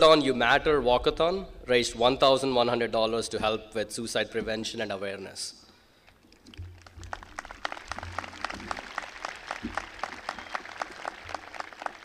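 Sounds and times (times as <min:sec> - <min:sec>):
audience applause: 0:06.8 - 0:12.0.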